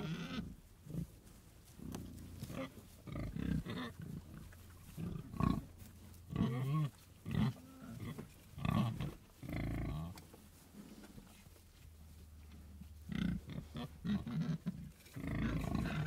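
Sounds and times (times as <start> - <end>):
pigs grunting: 0.0 - 1.1, 1.8 - 10.2, 13.1 - 16.0.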